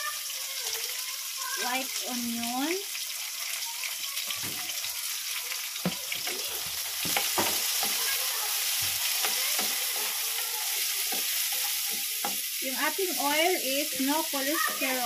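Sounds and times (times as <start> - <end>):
onion sizzling in oil: 0.0 - 15.0
spatula scraping and tapping pan: 5.8 - 12.6.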